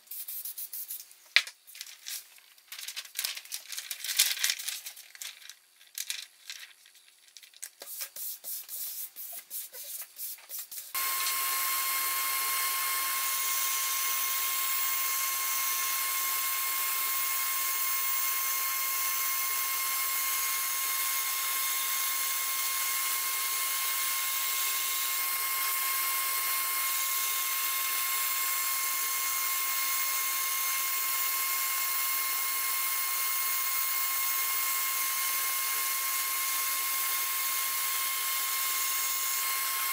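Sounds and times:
paper sheets rustling: 1.3 - 10.9
bandsaw cutting board: 10.9 - 39.9.

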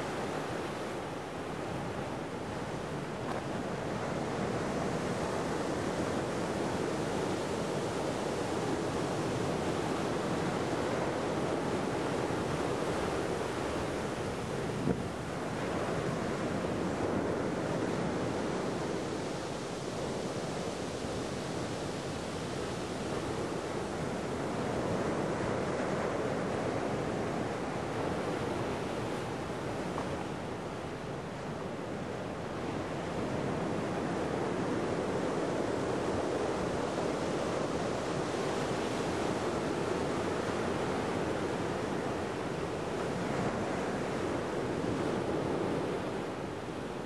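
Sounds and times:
wind on microphone: 0.0 - 47.0.

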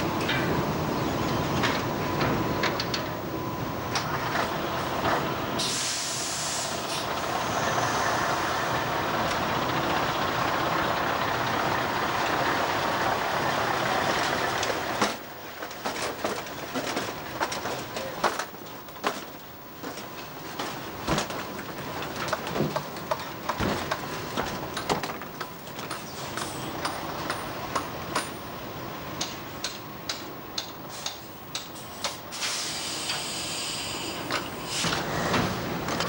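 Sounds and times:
truck air hiss: 5.6 - 8.8, 30.9 - 35.8.

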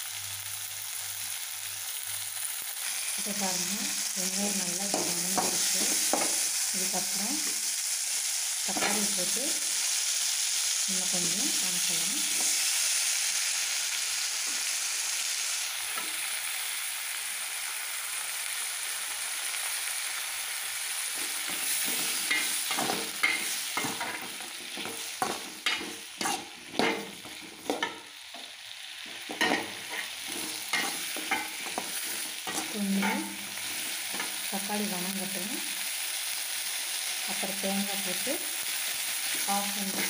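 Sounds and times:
vegetables sizzling in oil: 0.0 - 40.0
metal spatula scraping pan: 21.2 - 28.1, 29.1 - 34.4, 39.3 - 40.0.

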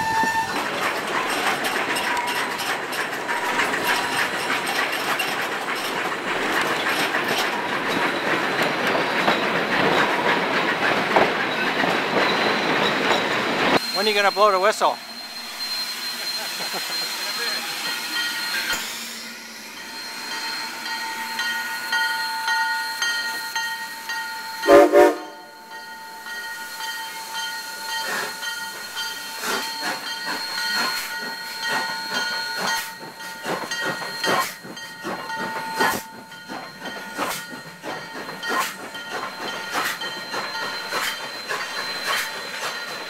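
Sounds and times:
steam whistle toots: 0.0 - 0.7, 24.6 - 25.6
steam locomotive hissing: 0.0 - 43.0.

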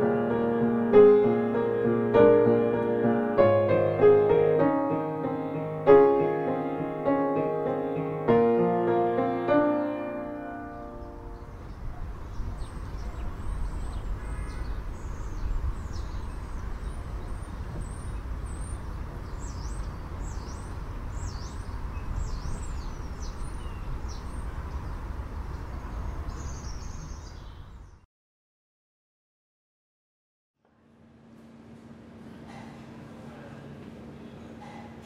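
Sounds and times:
birds chirping: 0.0 - 28.0.

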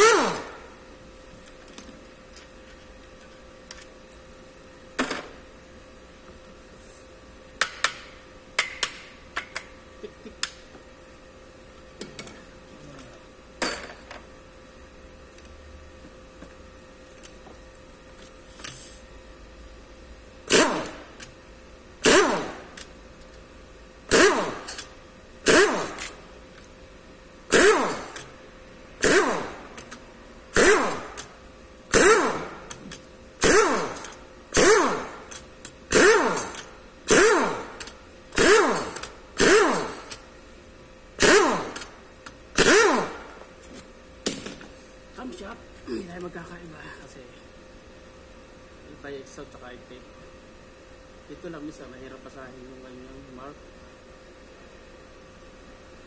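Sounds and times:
impact wrench bursts: 0.0 - 0.7, 20.4 - 21.3, 22.0 - 22.9, 24.0 - 26.2, 27.5 - 28.4, 29.0 - 31.3, 31.9 - 40.2, 41.2 - 43.5.

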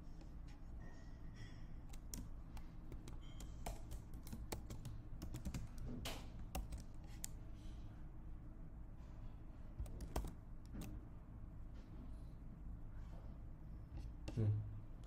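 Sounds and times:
faint low hum: 0.0 - 15.0
typing on computer keyboard: 1.9 - 7.4, 9.8 - 10.9.

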